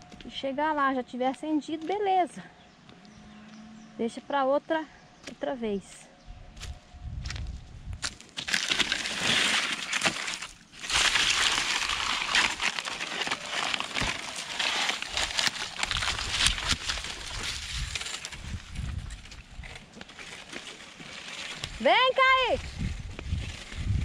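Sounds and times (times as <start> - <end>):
dry bark and twigs crackling: 6.6 - 24.0
twigs snapping: 8.0 - 21.8.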